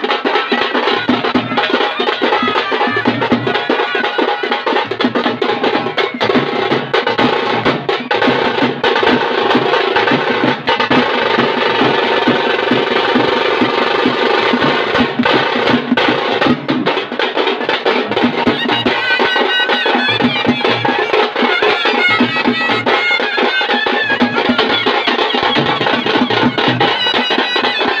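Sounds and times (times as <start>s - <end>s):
drum band playing fast rhythm: 0.0s - 28.0s
high melody line: 18.1s - 28.0s.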